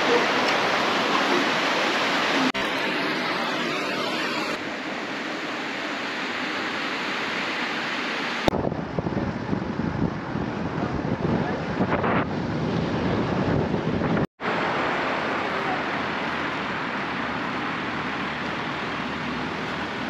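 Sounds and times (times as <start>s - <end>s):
river rushing over boulders: 0.0s - 9.5s, 11.4s - 20.0s
wind gusting on microphone: 8.3s - 20.0s.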